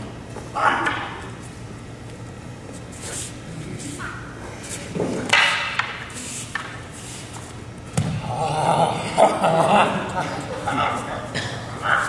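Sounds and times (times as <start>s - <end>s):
wooden staffs knocking together: 5.0s - 6.8s.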